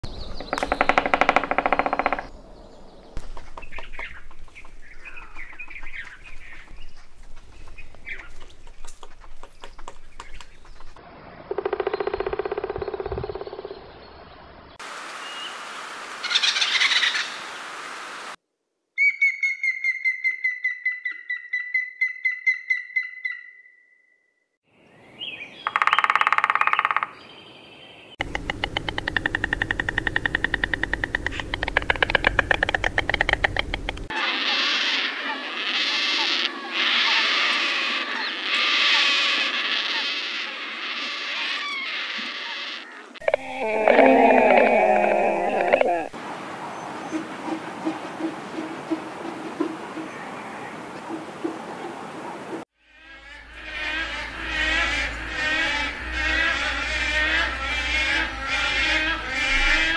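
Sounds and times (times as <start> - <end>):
woodpecker calls: 0.0 - 2.4, 3.1 - 13.9, 25.2 - 27.5, 28.2 - 59.9
woodpecker tapping: 0.2 - 2.3, 3.2 - 13.7, 25.6 - 27.2, 28.2 - 34.1.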